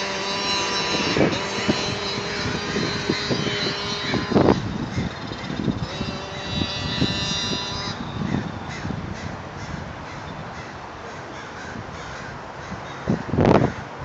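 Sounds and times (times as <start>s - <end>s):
small scooter engine whining: 0.0s - 10.9s
outdoor background noise: 0.0s - 14.0s.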